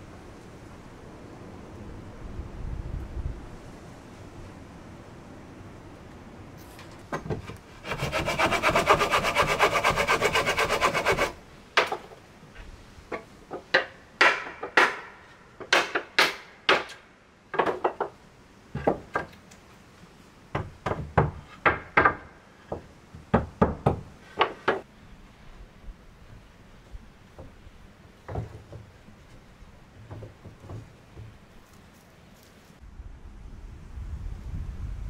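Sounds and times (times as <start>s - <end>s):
hand tool striking wood: 7.1s - 12.2s, 13.1s - 17.0s
hand tool rasping on wood: 7.8s - 11.4s.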